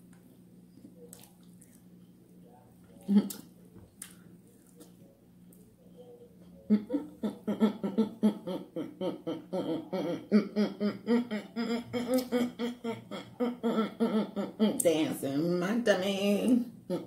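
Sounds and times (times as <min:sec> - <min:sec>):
person laughing: 0:06.6 - 0:14.8.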